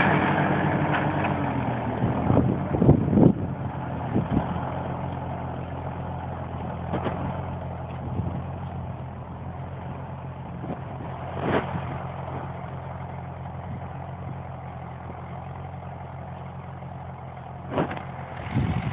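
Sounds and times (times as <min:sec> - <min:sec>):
tractor diesel engine running: 0:00.0 - 0:18.9.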